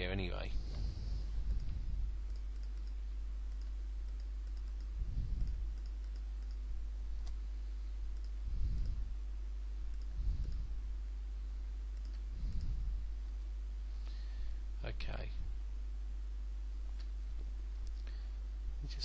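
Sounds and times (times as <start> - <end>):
low electrical hum: 0.0 - 19.0
soft low thumps: 0.3 - 11.1
computer mouse clicking: 1.5 - 7.4, 8.1 - 9.0, 9.9 - 10.7, 11.9 - 12.8.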